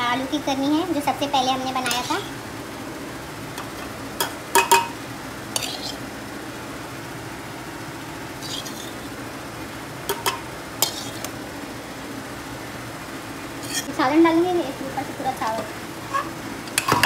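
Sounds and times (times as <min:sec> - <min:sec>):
steady low hum: 0:00.0 - 0:17.0
metal ladle clinking on pot: 0:04.2 - 0:05.0, 0:10.1 - 0:11.1.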